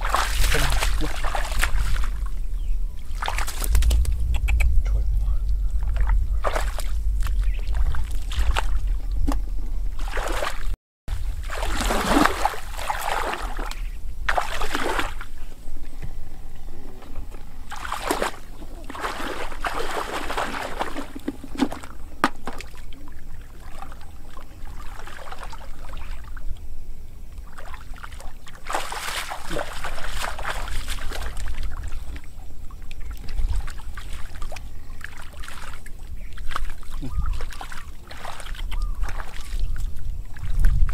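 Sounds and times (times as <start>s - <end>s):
muddy water sloshing and splashing: 0.0s - 15.9s, 17.2s - 40.9s
steady low rumble: 0.0s - 27.5s.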